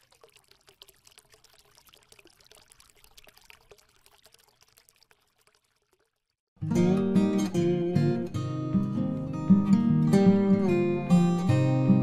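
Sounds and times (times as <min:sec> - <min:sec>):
liquid trickling with small clicks: 0:00.0 - 0:06.6.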